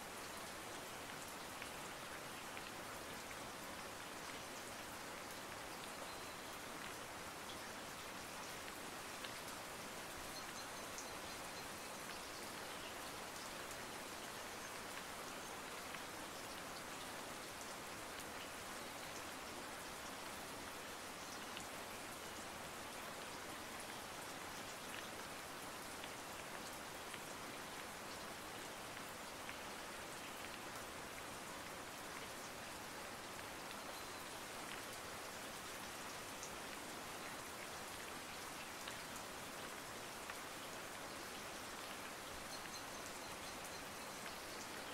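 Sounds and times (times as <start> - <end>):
steady rain: 0.0 - 44.9.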